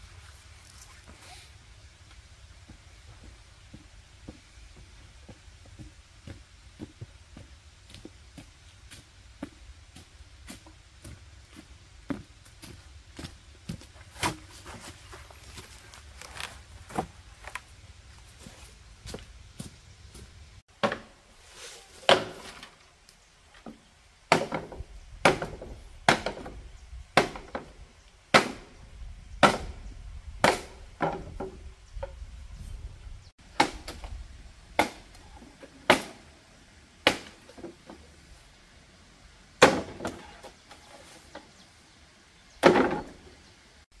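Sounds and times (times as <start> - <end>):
bamboo poles knocking and clattering: 12.1 - 17.7, 20.7 - 22.9, 23.5 - 26.6, 27.2 - 28.7, 29.4 - 29.8, 30.4 - 32.2, 37.0 - 38.1, 39.6 - 41.6, 42.6 - 43.3.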